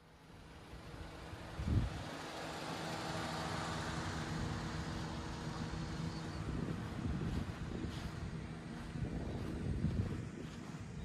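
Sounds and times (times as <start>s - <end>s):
wind rumbling on microphone: 1.1s - 2.1s, 5.4s - 11.0s.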